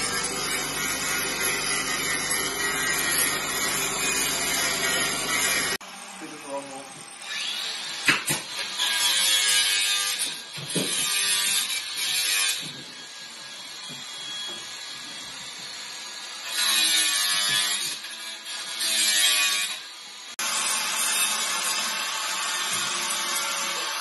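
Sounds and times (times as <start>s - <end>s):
angle grinder sanding wood: 0.0s - 6.7s.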